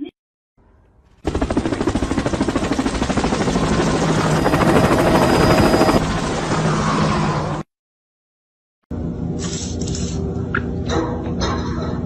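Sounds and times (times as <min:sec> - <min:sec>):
helicopter rotor chopping: 0:01.2 - 0:07.6.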